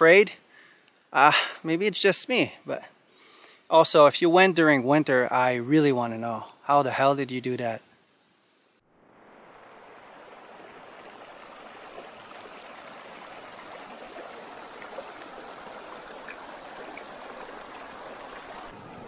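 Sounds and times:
brook rushing over stones: 9.3 - 18.8.

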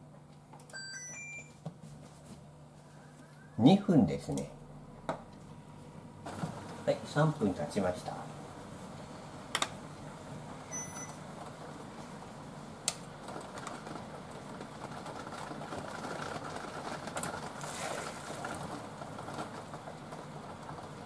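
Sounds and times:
short electronic beep: 0.8 - 1.6, 10.7 - 11.2
water splashing and draining: 17.6 - 18.7.

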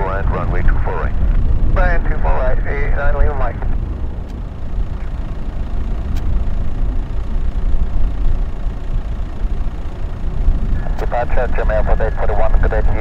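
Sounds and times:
jet engine rumble: 0.0 - 13.0.

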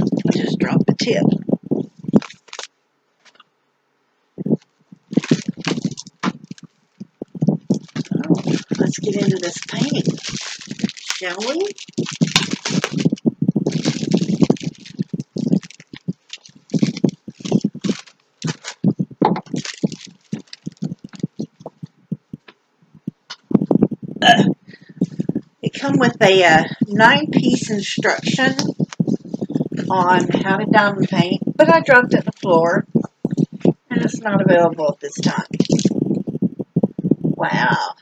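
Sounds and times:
plastic tube rustles and knocks: 4.5 - 22.6.

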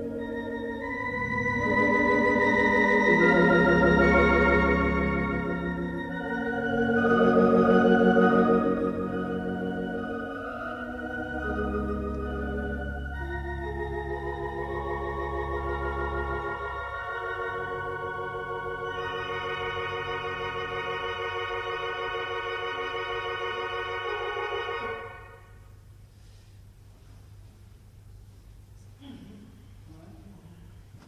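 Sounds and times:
deep organ pedal note: 0.0 - 25.6
pipe organ chords with tremulant: 0.0 - 25.8.

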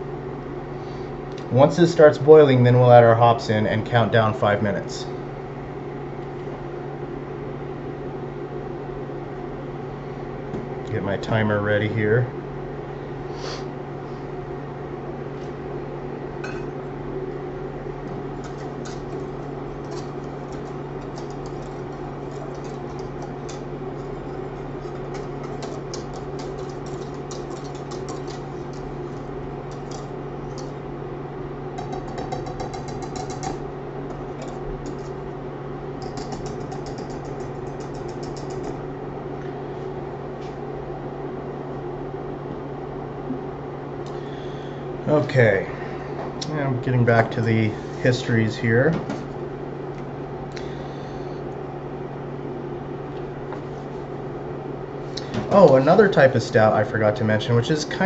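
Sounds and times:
steady low hum: 0.0 - 58.0
whisk clinking against saucepan: 18.4 - 30.7, 31.8 - 33.6, 36.0 - 38.8.

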